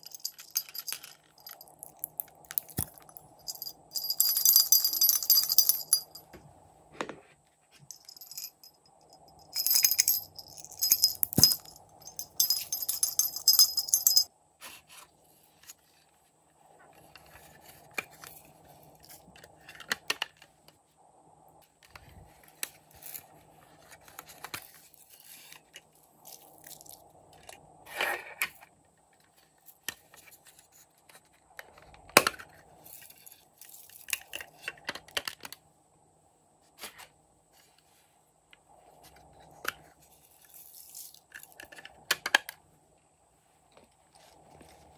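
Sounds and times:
jingle bell shaking: 0:00.0 - 0:06.2, 0:07.9 - 0:14.3.

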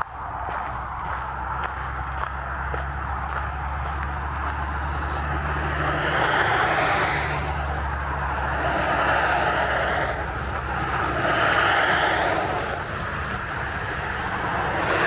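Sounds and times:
strong wind on microphone: 0:05.5 - 0:15.0.

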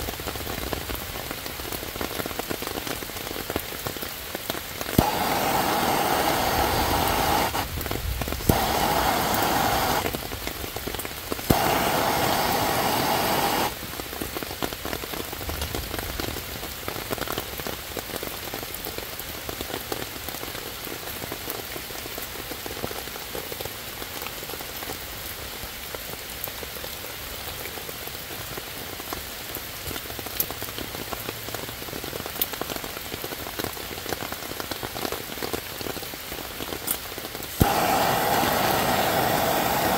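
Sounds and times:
rain falling on leaves: 0:00.0 - 0:39.9
gas torch flame burning: 0:04.8 - 0:13.9, 0:37.5 - 0:39.9
torch igniter click: 0:05.0 - 0:07.7, 0:08.4 - 0:10.2, 0:11.5 - 0:13.8, 0:37.6 - 0:39.9.

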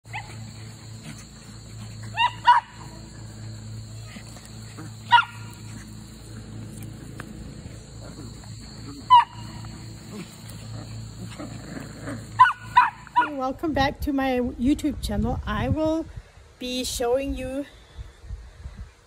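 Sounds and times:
puppies yipping: 0:00.0 - 0:13.4
steady low hum: 0:00.0 - 0:16.4.

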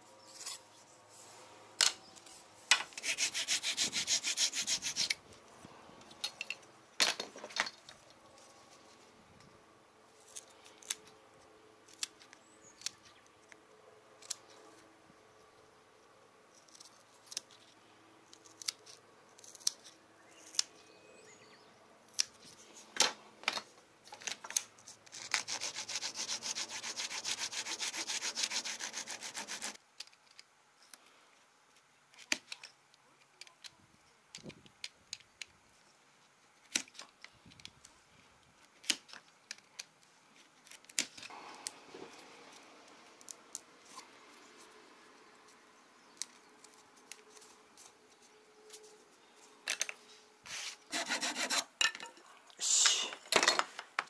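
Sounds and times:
tools and wood clicking: 0:11.8 - 0:13.6, 0:16.5 - 0:17.7, 0:18.3 - 0:20.8, 0:30.0 - 0:31.1, 0:31.8 - 0:35.6, 0:38.6 - 0:42.2, 0:49.6 - 0:50.0
scraping on wood: 0:50.5 - 0:51.7.

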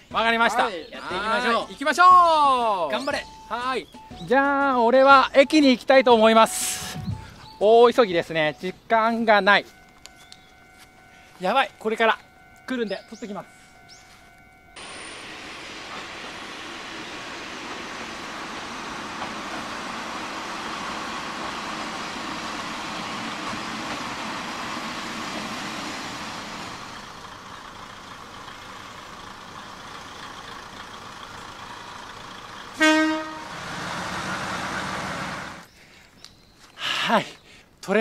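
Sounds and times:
railcar rumbling past: 0:06.4 - 0:35.7
train horn blast: 0:32.7 - 0:34.6.

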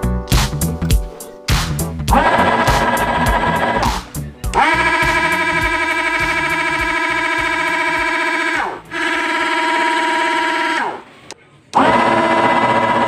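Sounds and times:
air pump motor whining: 0:02.1 - 0:03.9, 0:04.5 - 0:11.2, 0:11.8 - 0:13.0.

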